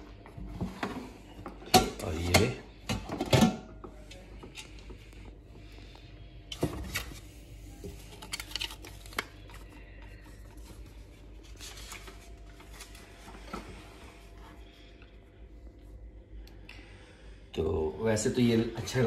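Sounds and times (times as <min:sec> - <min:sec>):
paper rustling: 0:06.8 - 0:13.5.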